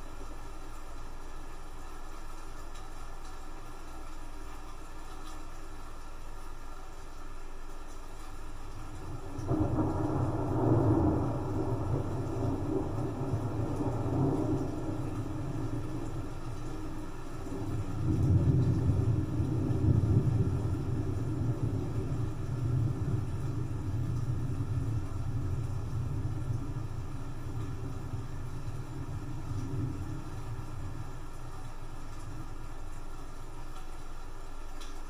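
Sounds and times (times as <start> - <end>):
rain hissing: 0.0 - 35.0
thunder rumbling: 8.9 - 32.6.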